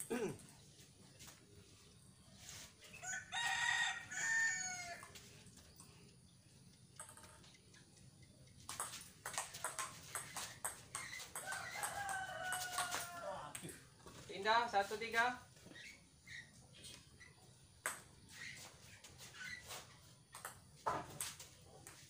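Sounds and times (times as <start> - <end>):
rooster crowing: 2.9 - 5.1, 11.4 - 13.6.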